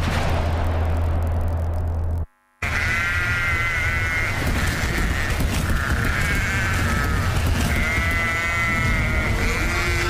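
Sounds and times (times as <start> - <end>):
low rumble: 0.0 - 2.3.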